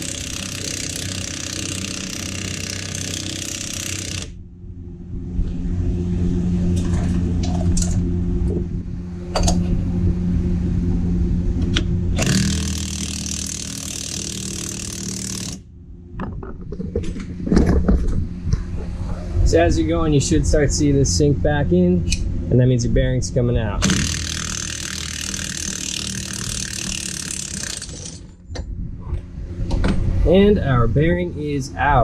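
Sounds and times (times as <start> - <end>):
impact wrench hammering: 0.0 - 4.4, 12.2 - 15.6, 23.8 - 28.3.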